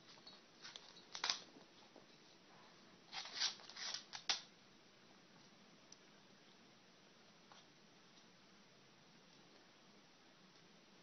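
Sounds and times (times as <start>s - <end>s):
kitten claws scrabbling on floor: 3.1s - 4.5s.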